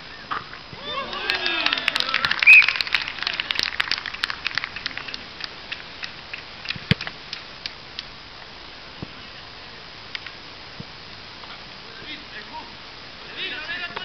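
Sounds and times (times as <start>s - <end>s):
rapid crackling clicks: 2.0s - 8.2s.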